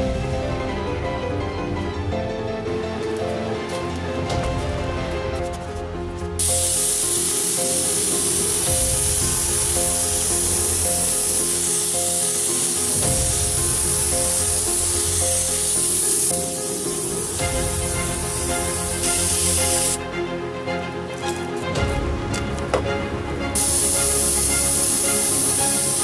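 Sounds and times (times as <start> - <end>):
background music: 0.0 - 26.0
air spray gun hissing: 6.4 - 20.0, 23.6 - 26.0.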